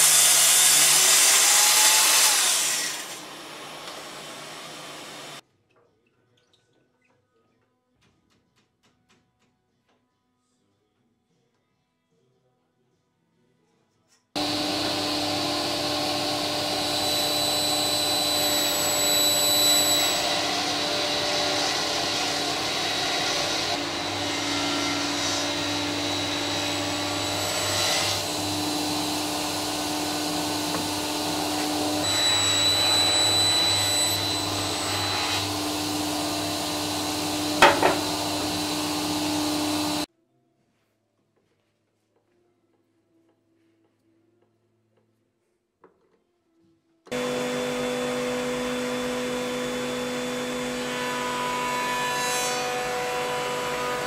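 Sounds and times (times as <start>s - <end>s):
table saw cutting wood: 0.0s - 5.4s, 14.4s - 40.1s, 47.1s - 54.0s
sharp knocks: 37.6s - 38.1s.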